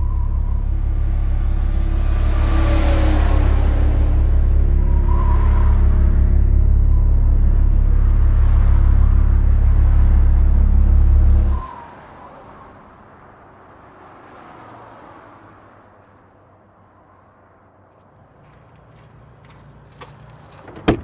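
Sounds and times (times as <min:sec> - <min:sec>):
low motor drone: 0:00.0 - 0:11.8.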